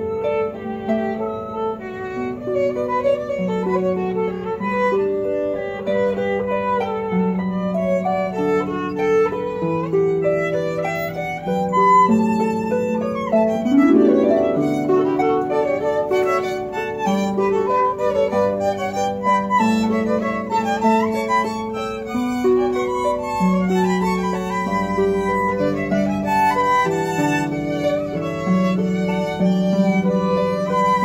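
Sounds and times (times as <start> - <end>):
harp plucking: 0.0 - 31.0
violins bowing melody: 0.0 - 31.0.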